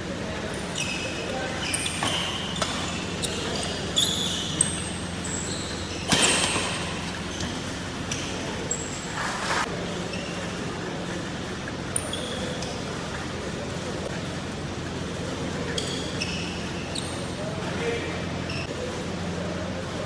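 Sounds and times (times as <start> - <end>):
steady low hum: 0.0 - 20.0
shoes squeaking on court: 0.4 - 14.3, 15.3 - 18.8
rackets striking shuttlecock: 1.8 - 9.0.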